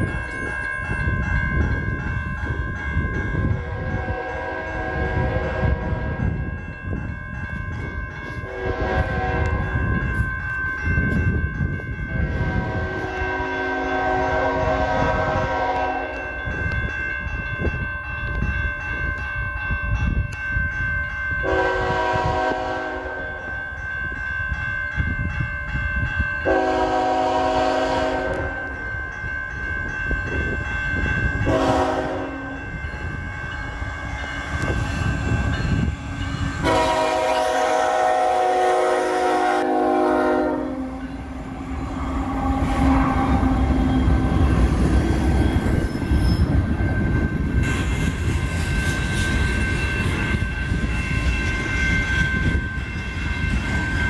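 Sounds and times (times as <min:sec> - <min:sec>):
crossing warning bell ringing: 0:00.0 - 0:54.0
train rumbling: 0:00.0 - 0:54.0
locomotive air horn blasts: 0:03.6 - 0:06.2, 0:08.4 - 0:09.7, 0:12.3 - 0:16.2, 0:21.4 - 0:23.4, 0:26.4 - 0:28.7, 0:31.5 - 0:32.6, 0:36.6 - 0:44.4.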